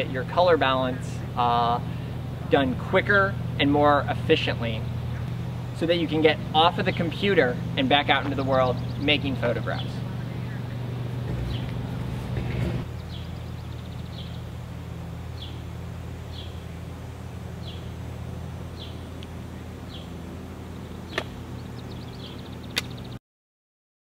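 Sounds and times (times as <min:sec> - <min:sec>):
steady low hum: 0:00.0 - 0:23.2
bird chirping and trilling: 0:06.6 - 0:12.0, 0:12.8 - 0:14.6, 0:15.3 - 0:16.8, 0:17.6 - 0:18.0, 0:18.7 - 0:23.2
sharp clicks: 0:22.7 - 0:23.0.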